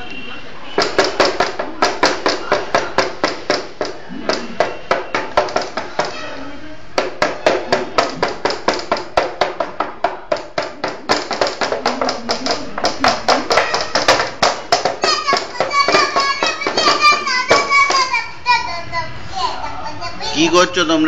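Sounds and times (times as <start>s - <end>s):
rapid rhythmic sharp strikes: 6.9s - 18.0s.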